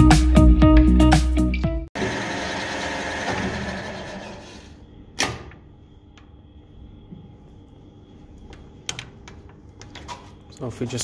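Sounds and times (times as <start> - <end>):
faint steady hum: 4.6 - 11.0.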